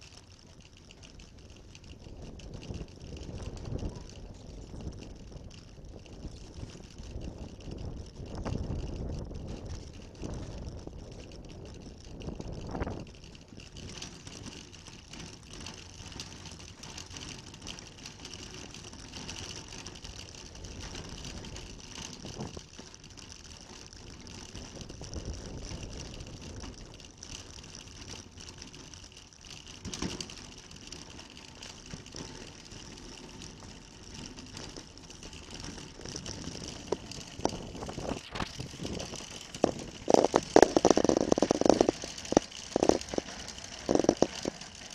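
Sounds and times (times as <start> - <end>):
shopping trolley wheels rolling: 0.0 - 44.9
trolley basket rattling: 0.0 - 44.9
trolley knocks and clatter: 29.7 - 44.9.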